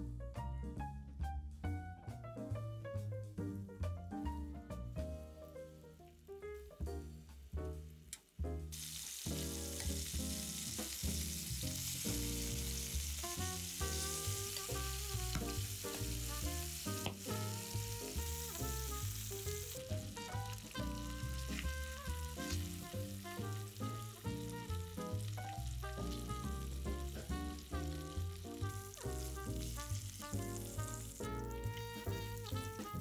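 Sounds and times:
background music: 0:00.0 - 0:33.0
food sizzling in oil: 0:08.7 - 0:33.0.

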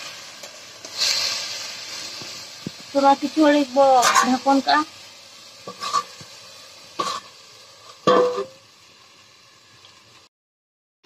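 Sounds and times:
vegetables sizzling in a pan: 0:00.0 - 0:10.3
metal bowl clanking on pan: 0:04.0 - 0:04.5, 0:05.7 - 0:06.3, 0:07.0 - 0:07.3, 0:08.0 - 0:08.6.

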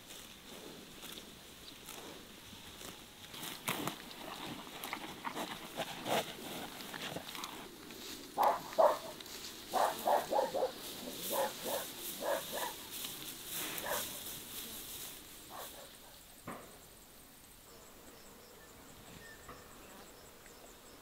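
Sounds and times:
dog barking: 0:08.4 - 0:12.8, 0:13.8 - 0:14.2, 0:15.5 - 0:16.2.

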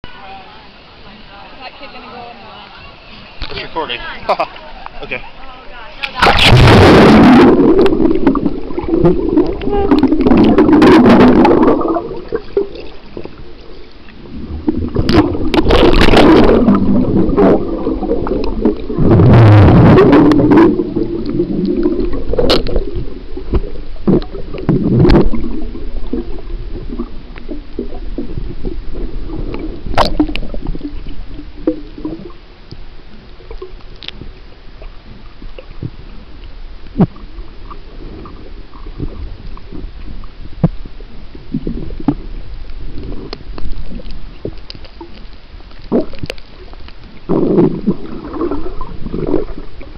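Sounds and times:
water rushing surges: 0:00.1 - 0:32.6
underwater gurgling: 0:03.3 - 0:49.9.

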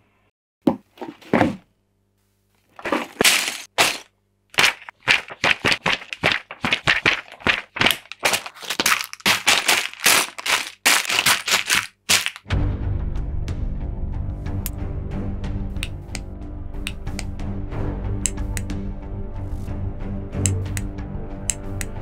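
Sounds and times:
plastic bags crinkling: 0:02.7 - 0:12.5.

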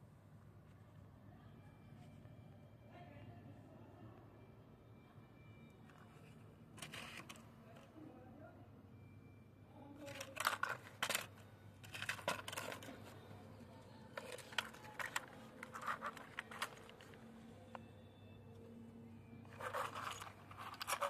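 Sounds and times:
plastic toy clattering on concrete: 0:10.0 - 0:13.2, 0:14.1 - 0:17.2.

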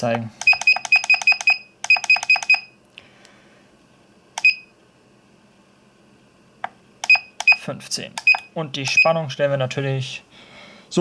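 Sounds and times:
short high beeps: 0:00.5 - 0:02.7.

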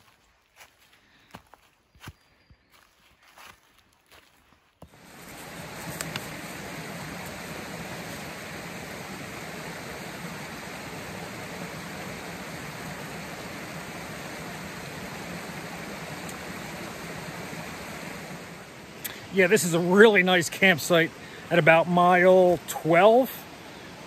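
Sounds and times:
creek water rushing over stones: 0:04.8 - 0:24.0.

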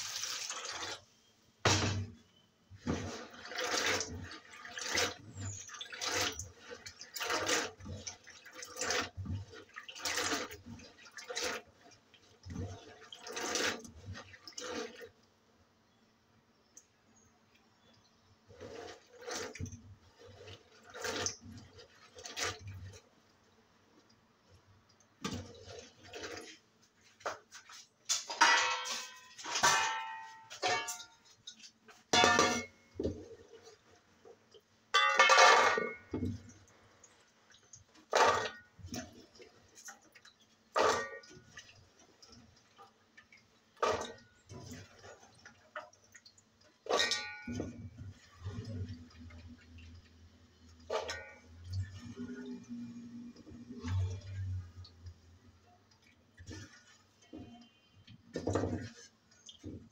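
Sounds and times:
dishes and pots clattering in sink: 0:01.6 - 0:15.1, 0:25.2 - 0:36.8, 0:37.7 - 0:55.1, 0:55.8 - 0:59.9.

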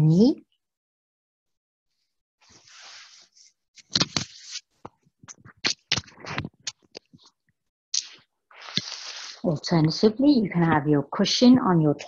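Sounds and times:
scrapes and knocks on yoga mat: 0:02.4 - 0:07.3
clothing rustling: 0:02.4 - 0:07.4.

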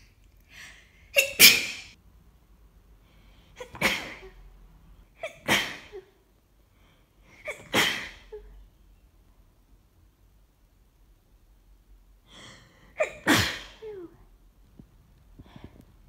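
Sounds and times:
person sneezing: 0:00.9 - 0:02.0, 0:03.6 - 0:04.4, 0:05.2 - 0:06.2, 0:07.3 - 0:08.5, 0:12.9 - 0:14.2.

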